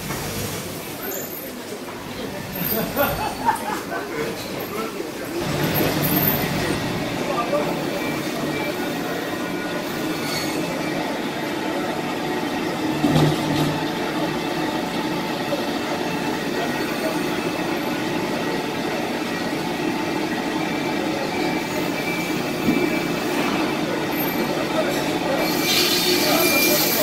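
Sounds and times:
band saw running with whine: 25.3s - 27.0s.

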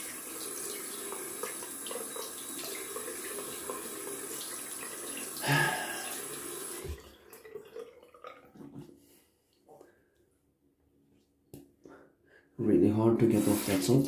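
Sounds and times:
bathroom tap running: 0.0s - 8.8s, 13.2s - 14.0s.

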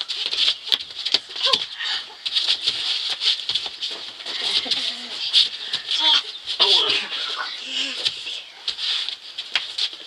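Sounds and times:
scuffling feet: 0.0s - 10.0s
child squealing: 6.0s - 7.0s.

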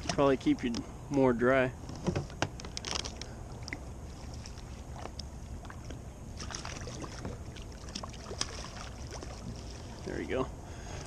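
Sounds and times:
water sloshing around kayaks: 1.8s - 11.0s
fishing gear clicks and knocks: 1.9s - 3.8s
landing net in water: 2.0s - 10.4s.

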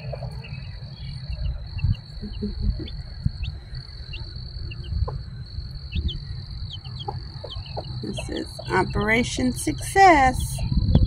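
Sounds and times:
baby chicks peeping: 0.0s - 11.0s
low rumble: 0.0s - 11.0s.

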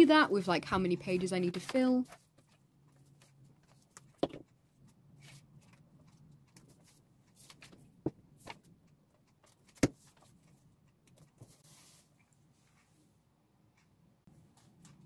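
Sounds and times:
paper rustling: 1.6s - 4.2s.

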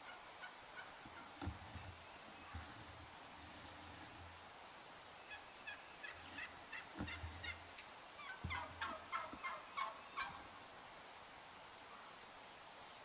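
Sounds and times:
turkeys calling: 5.3s - 10.5s.

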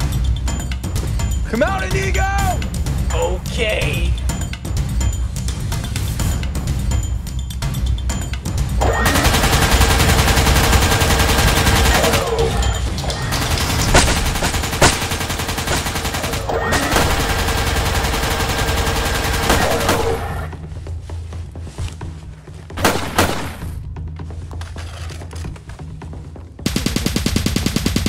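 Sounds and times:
background music: 0.0s - 28.0s
machine-gun fire bursts: 8.8s - 20.5s, 22.8s - 23.7s, 26.6s - 28.0s.

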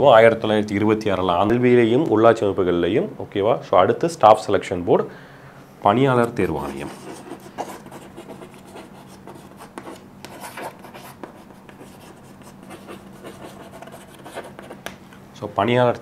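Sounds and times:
chalk scratching on chalkboard: 6.6s - 14.9s.

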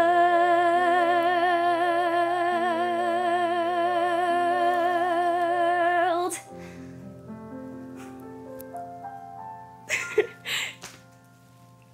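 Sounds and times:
young woman singing with vibrato: 0.0s - 6.5s.

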